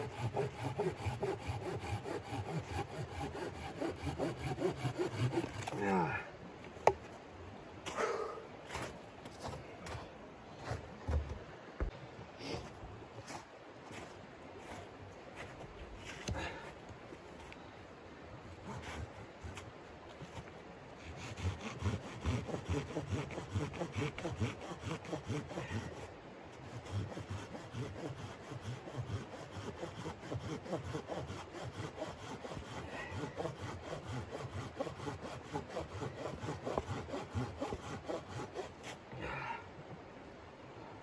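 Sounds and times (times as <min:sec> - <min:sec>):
hand saw cutting log: 0:00.0 - 0:05.9, 0:18.6 - 0:19.6, 0:21.0 - 0:39.0.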